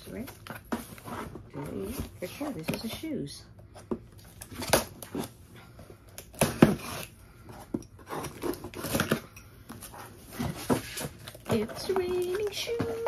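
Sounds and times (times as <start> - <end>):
cardboard flaps rustling: 8.0 - 13.0.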